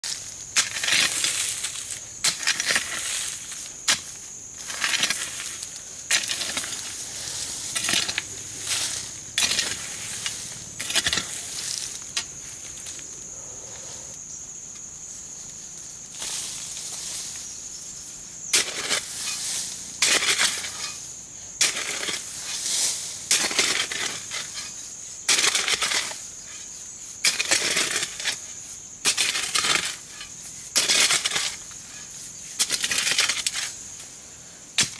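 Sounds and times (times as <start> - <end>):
loose earth crumbling: 0.0 - 13.2
hoe scraping into dry soil: 0.1 - 14.1, 18.5 - 33.9.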